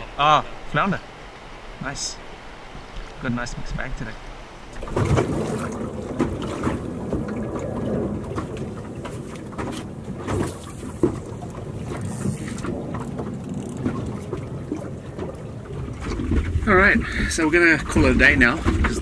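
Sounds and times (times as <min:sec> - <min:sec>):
choppy water: 0:00.0 - 0:19.0
wind rumble on microphone: 0:04.7 - 0:19.0.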